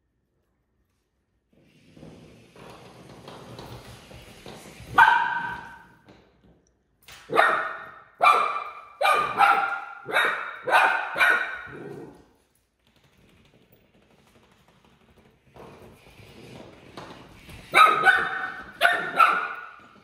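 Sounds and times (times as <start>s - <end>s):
puppy yapping: 7.3s - 12.2s, 17.7s - 19.8s.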